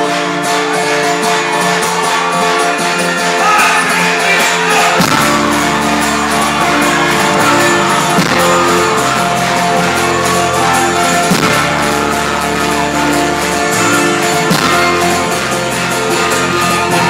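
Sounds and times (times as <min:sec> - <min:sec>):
folk-rock band playing: 0:00.0 - 0:17.0
deep bass: 0:04.9 - 0:17.0.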